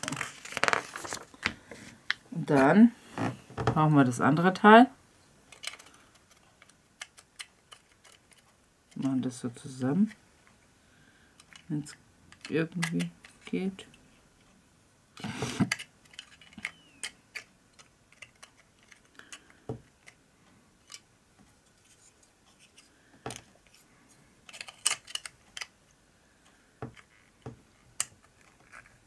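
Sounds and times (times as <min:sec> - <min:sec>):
plastic parts clicking and tapping: 0:05.5 - 0:09.1, 0:11.4 - 0:13.6, 0:15.6 - 0:20.2, 0:24.4 - 0:25.8, 0:26.4 - 0:28.9.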